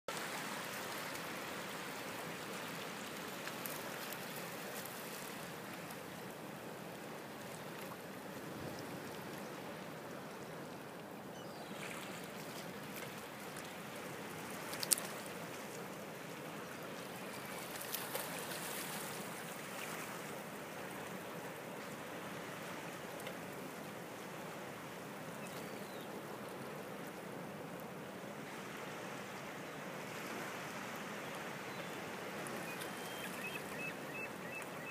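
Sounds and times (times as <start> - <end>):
water lapping against rocks: 0.1 - 6.3, 11.8 - 23.7
faint ticks: 14.6 - 15.3.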